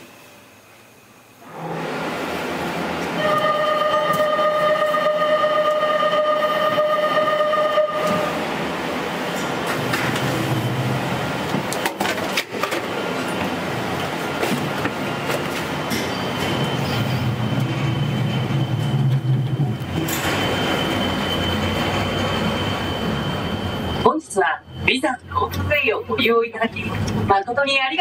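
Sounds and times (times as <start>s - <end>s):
ropeway machinery running: 1.4s - 27.4s
gondola cabin rumbling: 23.7s - 28.0s.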